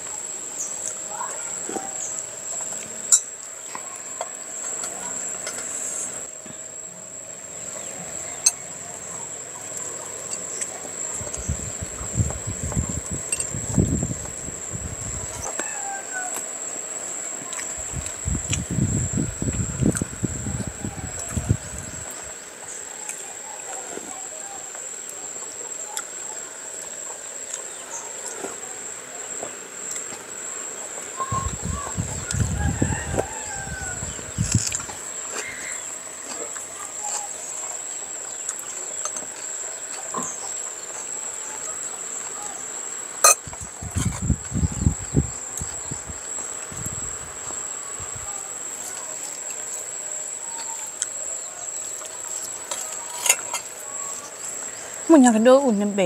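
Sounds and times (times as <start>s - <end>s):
high-pitched whine: 0.0s - 26.5s
insects droning: 0.0s - 56.0s.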